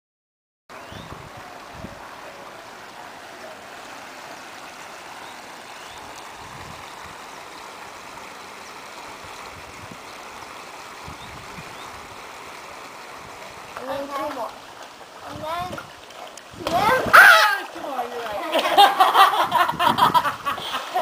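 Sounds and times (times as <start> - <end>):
running water rushing: 0.7 - 21.0
wind rumbling on microphone: 0.8 - 2.2, 5.9 - 7.4, 9.1 - 12.4, 15.2 - 17.4, 19.2 - 20.8.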